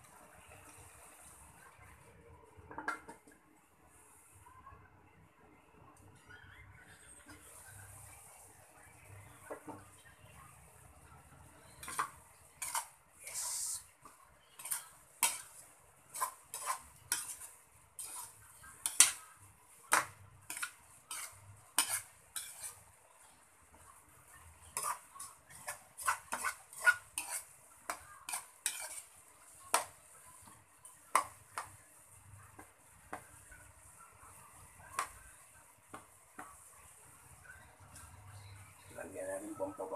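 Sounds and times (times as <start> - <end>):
faint sizzle: 0.0 - 39.9
metal spatula scraping a wok: 11.6 - 23.2, 24.4 - 31.8.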